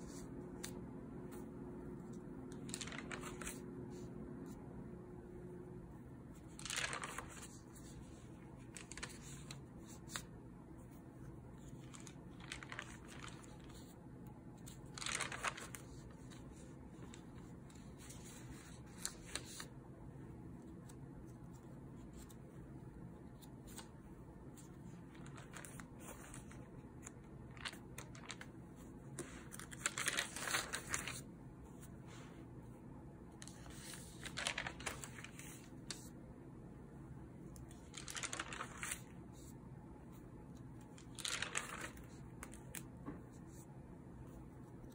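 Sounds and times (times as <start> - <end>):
notebook pages turning: 0.0 - 4.0, 6.3 - 14.0, 14.6 - 19.7, 24.6 - 32.0, 33.4 - 36.1, 37.6 - 39.5, 40.6 - 43.6
low room hum: 0.0 - 44.9.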